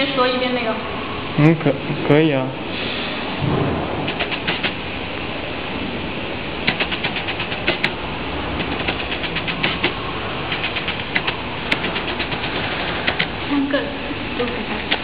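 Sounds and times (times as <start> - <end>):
steady mechanical whir: 3.2 - 15.0
rapid clicking bursts: 4.0 - 4.8, 6.6 - 13.5, 14.4 - 15.0.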